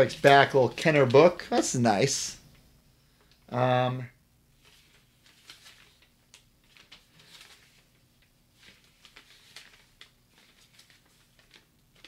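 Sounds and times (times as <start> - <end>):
paper booklet rustling: 0.0 - 1.8, 4.5 - 12.0.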